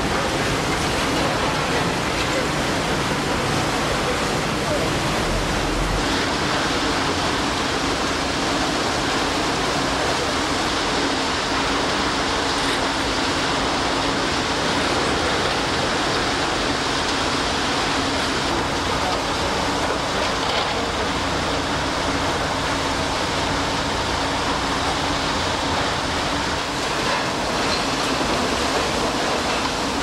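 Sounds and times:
loud rushing noise: 0:03.6 - 0:08.5.

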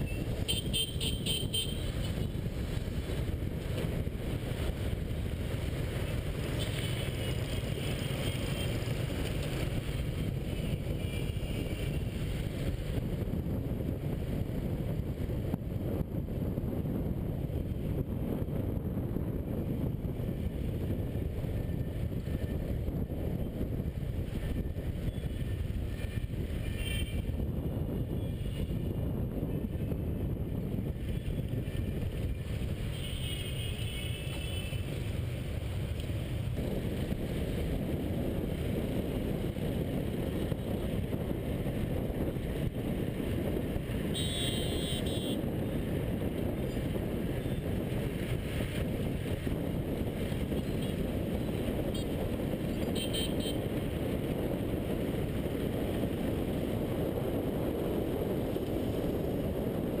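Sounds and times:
wind noise on microphone: 0:00.0 - 1:00.0
vehicle horns beeping: 0:00.1 - 0:02.0, 0:26.6 - 0:27.2, 0:44.2 - 0:45.4, 0:52.8 - 0:53.6.

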